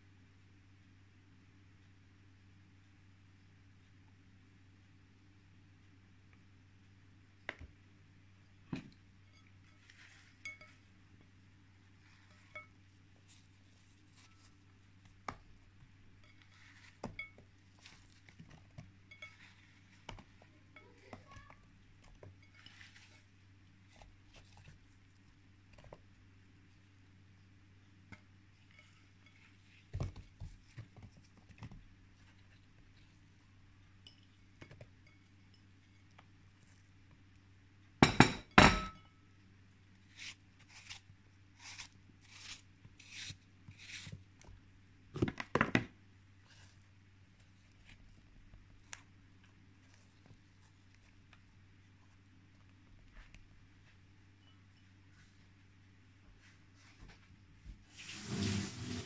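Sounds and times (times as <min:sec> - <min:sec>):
dishes and utensils clinking: 0:38.0 - 0:39.1.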